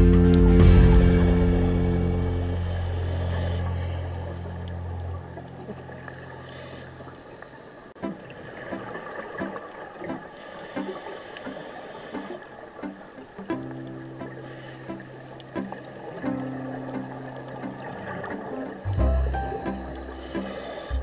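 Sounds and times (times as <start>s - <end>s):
sustained low chord: 0.0s - 6.1s, 13.5s - 21.0s
quiet plucked notes: 12.8s - 21.0s.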